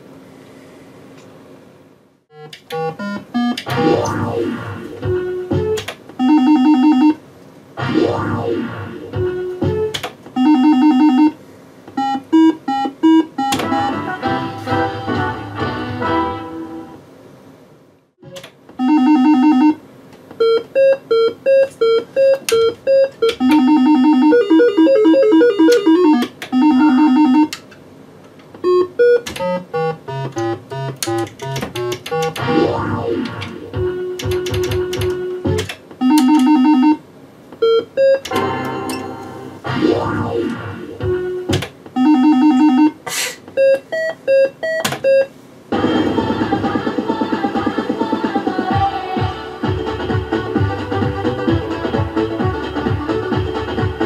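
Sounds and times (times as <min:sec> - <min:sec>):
slot machine electronic beeps: 0:02.3 - 0:07.2, 0:07.8 - 0:11.4, 0:12.0 - 0:15.3, 0:18.8 - 0:19.8, 0:20.4 - 0:27.5, 0:28.7 - 0:37.0, 0:37.6 - 0:43.0
falling run of notes: 0:32.4 - 0:34.2, 0:38.3 - 0:41.5.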